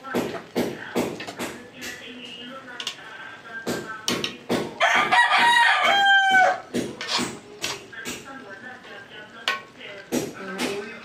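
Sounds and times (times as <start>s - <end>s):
rooster crowing: 4.8s - 6.7s.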